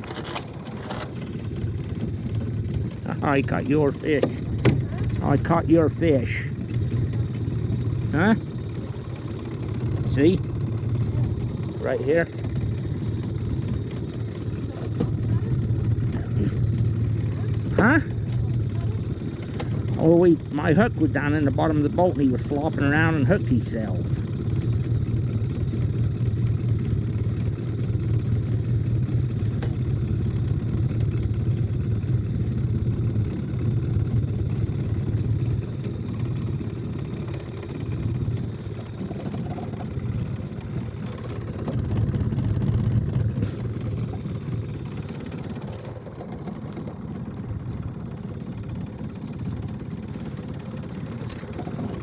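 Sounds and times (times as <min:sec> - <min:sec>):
outboard motor running: 0:00.0 - 0:52.0.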